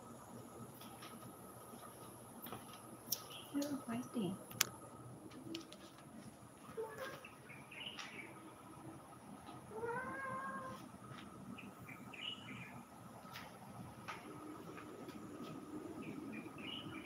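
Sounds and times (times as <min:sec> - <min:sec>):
cat meowing: 0:09.7 - 0:10.8.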